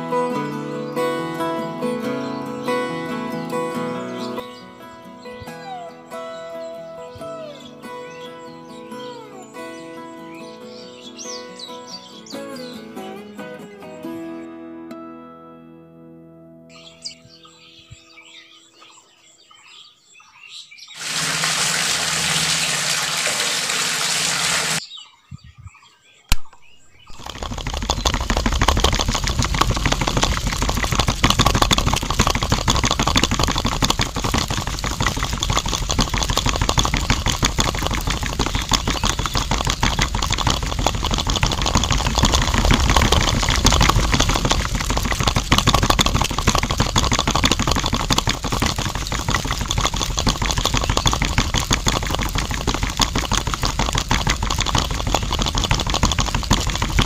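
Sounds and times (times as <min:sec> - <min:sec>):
sharp click: 0:26.3 - 0:26.8.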